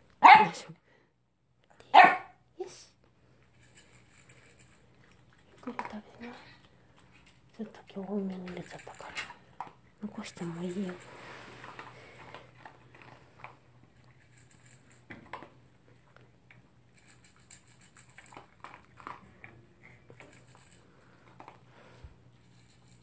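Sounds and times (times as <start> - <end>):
dog crunching dry food: 3.4 - 23.0
teeth and kibble clicking on bowl: 3.6 - 11.0, 16.2 - 21.6.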